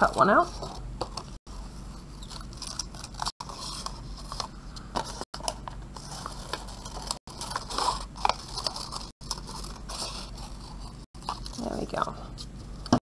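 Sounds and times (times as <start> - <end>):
scissors cutting paper: 2.2 - 4.4, 5.1 - 11.6.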